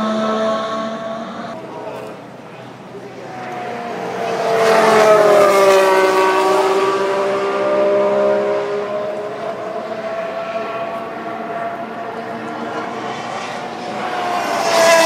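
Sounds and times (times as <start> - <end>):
race car engine passing: 0.0 - 1.8, 3.0 - 15.0.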